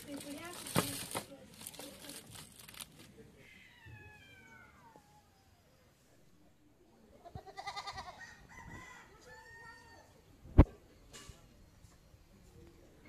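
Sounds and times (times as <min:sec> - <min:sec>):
rooster crowing: 0:08.0 - 0:10.2.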